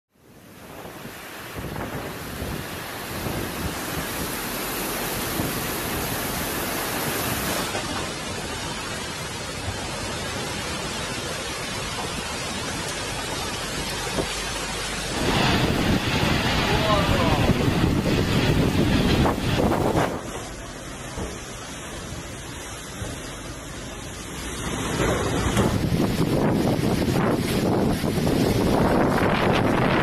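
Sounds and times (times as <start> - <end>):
heavy rain: 0.1 - 30.0
storm wind: 0.1 - 30.0.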